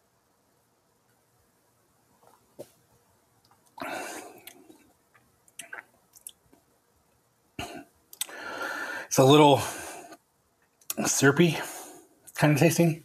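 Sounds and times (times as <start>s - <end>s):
lip-smacking clicks: 3.4s - 6.7s, 8.1s - 8.4s, 10.6s - 11.0s
man clearing throat: 7.6s - 7.9s.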